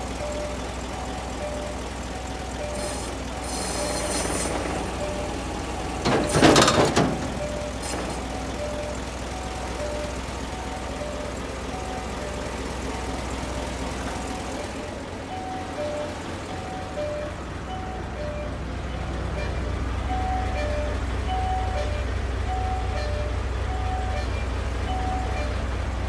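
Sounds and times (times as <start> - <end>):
diesel truck engine idling: 0.0 - 26.0
air hiss burst: 2.8 - 4.7.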